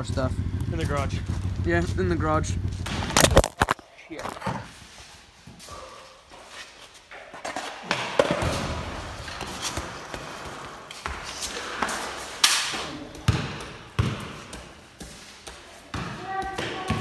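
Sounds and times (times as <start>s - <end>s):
irregular thumps and knocks: 2.6s - 4.7s.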